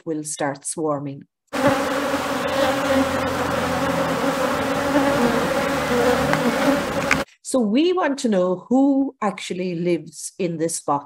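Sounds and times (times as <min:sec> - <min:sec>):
bees buzzing: 0:01.6 - 0:07.2.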